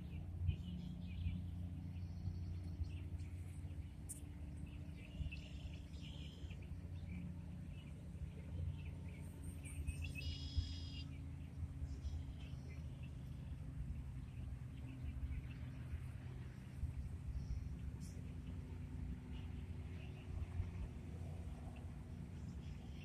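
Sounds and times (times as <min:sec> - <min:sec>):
small birds chirping: 0:00.0 - 0:20.9
steady low rumble: 0:00.0 - 0:23.0.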